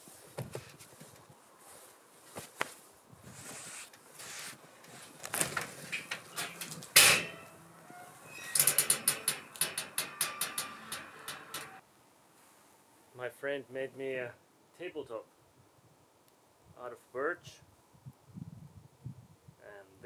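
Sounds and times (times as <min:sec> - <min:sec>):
scraping and rustling: 0:00.0 - 0:11.8.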